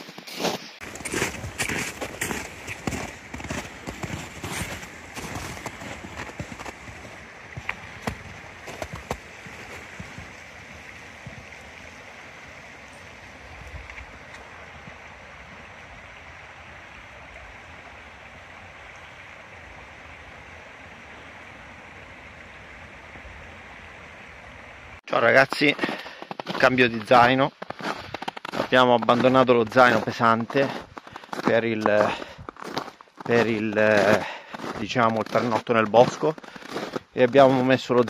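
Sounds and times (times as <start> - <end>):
boot footsteps on icy snow: 0.0 - 15.0, 25.2 - 38.0.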